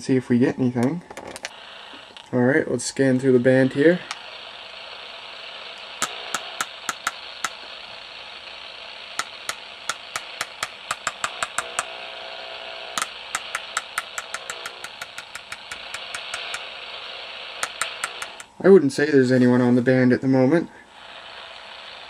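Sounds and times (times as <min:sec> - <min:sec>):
radio static hiss: 0:00.0 - 0:22.0
channel knob clicks: 0:06.0 - 0:07.6, 0:09.2 - 0:11.9, 0:13.0 - 0:16.7, 0:17.6 - 0:18.5.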